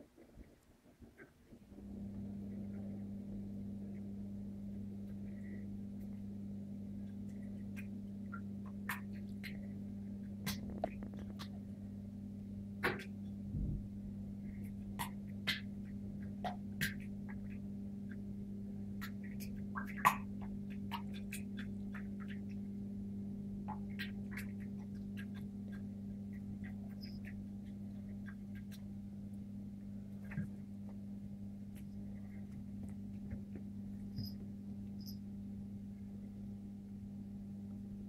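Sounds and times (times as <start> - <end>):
low hum: 1.6 - 38.0
small water splashes and drips: 18.9 - 22.8, 23.6 - 28.9.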